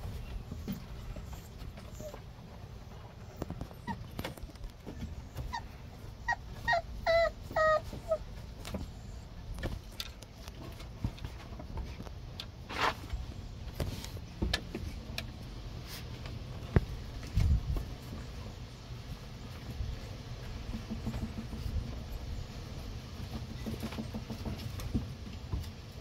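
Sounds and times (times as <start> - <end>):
puppy whining: 0.0 - 9.3.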